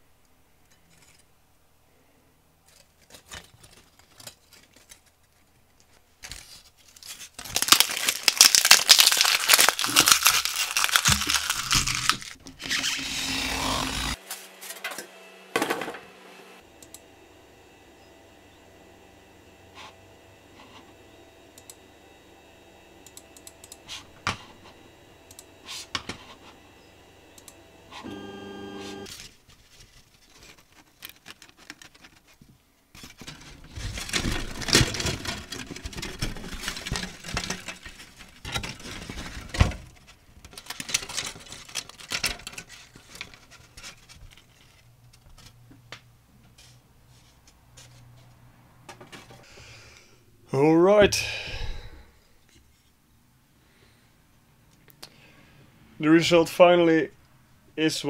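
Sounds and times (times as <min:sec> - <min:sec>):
foam sheet crackling and snapping: 0:02.7 - 0:13.0, 0:29.0 - 0:44.9
short tone: 0:28.0 - 0:29.1.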